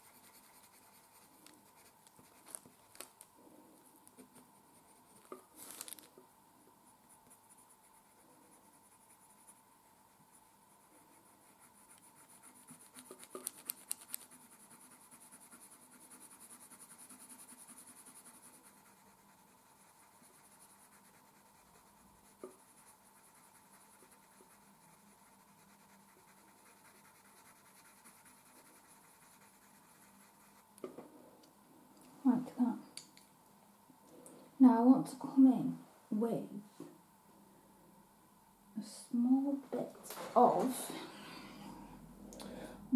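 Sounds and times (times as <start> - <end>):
pencil scratching on paper: 0.0 - 2.8, 6.9 - 30.7.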